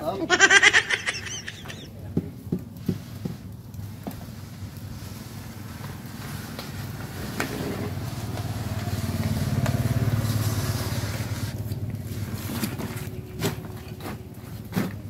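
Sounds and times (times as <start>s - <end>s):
vehicle engine passing: 5.2s - 14.5s.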